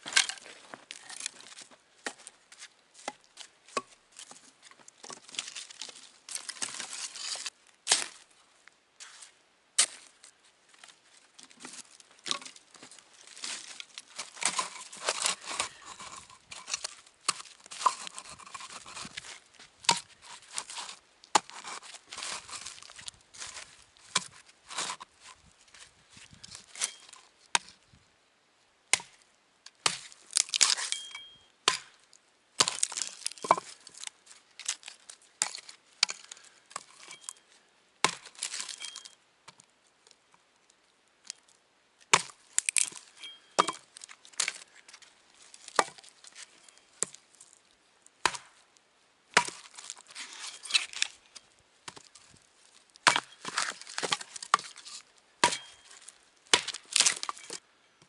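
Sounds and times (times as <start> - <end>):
wood cracking and splintering: 0.0 - 2.3, 11.4 - 25.4, 29.8 - 30.9, 32.6 - 37.4, 38.0 - 39.1, 42.0 - 47.6, 49.3 - 51.2, 51.8 - 57.6
axe chopping wood: 14.2 - 19.1, 19.8 - 21.8, 24.1 - 25.0, 26.8 - 27.8, 28.9 - 29.2, 29.8 - 32.0, 32.6 - 33.7, 38.0 - 39.0, 42.1 - 44.6, 45.7 - 46.1, 48.2 - 48.6, 49.3 - 50.0, 51.8 - 52.1, 53.0 - 55.8, 56.5 - 57.6.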